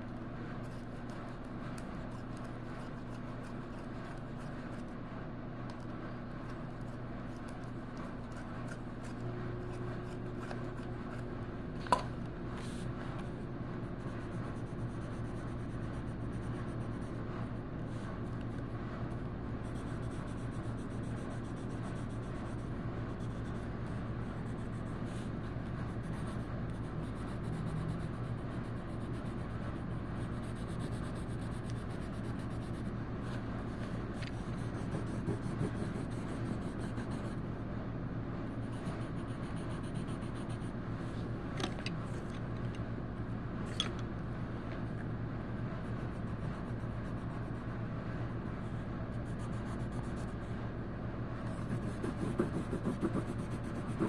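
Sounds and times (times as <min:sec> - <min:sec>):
steady low hum: 0:00.0 - 0:54.0
colouring tool scratching paper: 0:34.2 - 0:37.4, 0:51.6 - 0:54.0.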